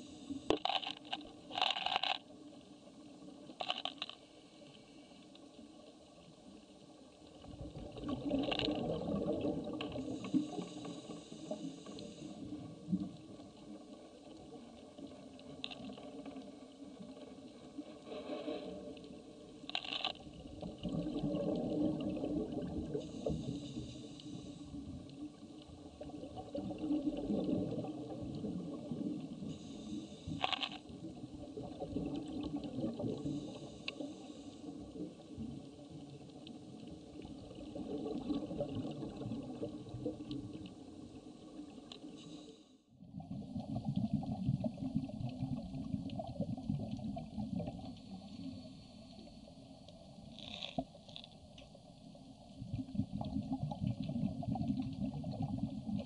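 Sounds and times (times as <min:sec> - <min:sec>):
faint clicks: 0:00.3 - 0:02.6, 0:03.3 - 0:05.6, 0:15.0 - 0:17.6, 0:19.0 - 0:20.3, 0:29.4 - 0:30.9, 0:33.5 - 0:34.3, 0:49.1 - 0:51.8
diver's exhaled bubbles underwater: 0:07.4 - 0:13.8, 0:19.8 - 0:42.2, 0:43.0 - 0:48.7, 0:52.4 - 0:56.0.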